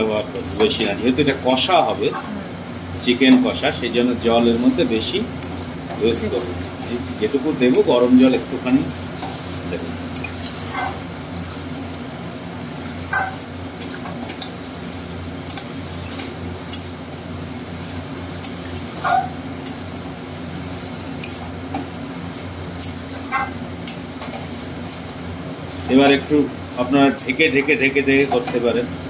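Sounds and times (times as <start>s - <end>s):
metal spatula scraping a pan: 10.2s - 11.0s, 12.8s - 13.4s.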